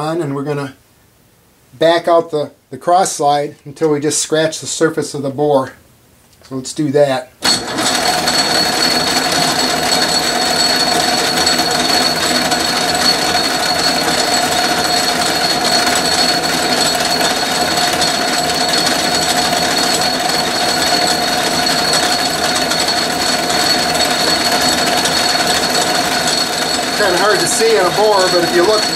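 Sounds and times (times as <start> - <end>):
high whine: 7.4 - 28.9
metal lathe whirring: 7.4 - 28.9.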